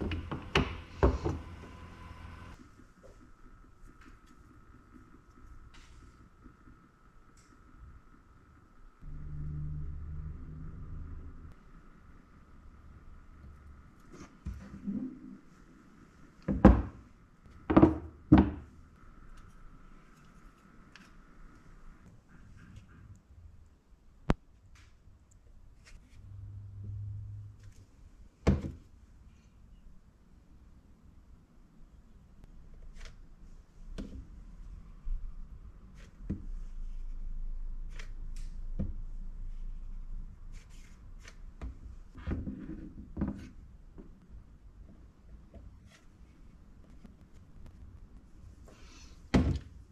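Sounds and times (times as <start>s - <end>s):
faint high tone: 9.0s - 11.5s.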